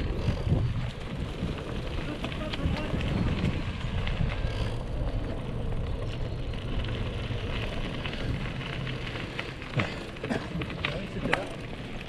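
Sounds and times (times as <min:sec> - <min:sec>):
bike rattles: 0:00.0 - 0:12.0.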